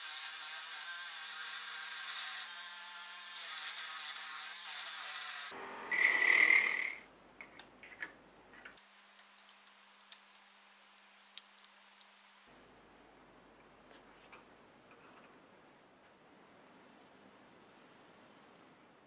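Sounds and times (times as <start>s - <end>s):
rotary tool grinding metal: 0.0s - 5.5s.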